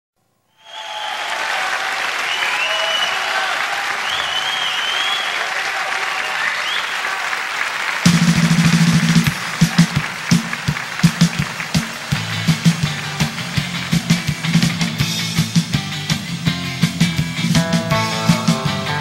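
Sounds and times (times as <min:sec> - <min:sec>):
audience applauding and cheering: 0:00.6 - 0:19.0
whistles gliding up and down: 0:02.2 - 0:03.2, 0:04.0 - 0:05.5, 0:06.1 - 0:07.0
band playing loud chord: 0:08.1 - 0:19.0.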